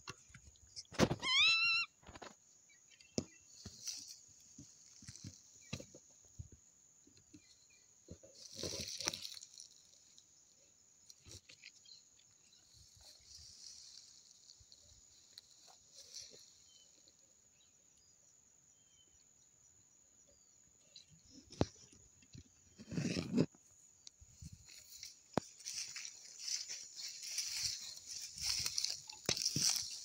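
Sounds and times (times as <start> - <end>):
brush rustling: 3.3 - 6.0, 8.2 - 17.1, 24.3 - 30.0
footfalls in vegetation: 24.5 - 30.0.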